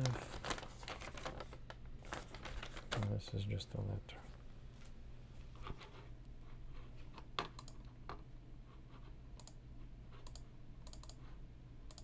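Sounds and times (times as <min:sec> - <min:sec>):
steady low hum: 0:00.0 - 0:12.0
computer mouse clicking: 0:07.4 - 0:08.2, 0:09.4 - 0:09.6, 0:10.2 - 0:11.3.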